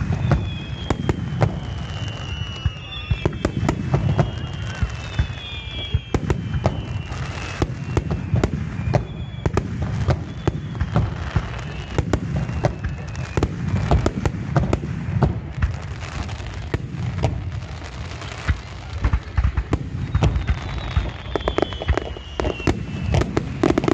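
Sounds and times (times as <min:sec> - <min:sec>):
high falling whistles: 0:00.0 - 0:14.1, 0:19.8 - 0:23.9.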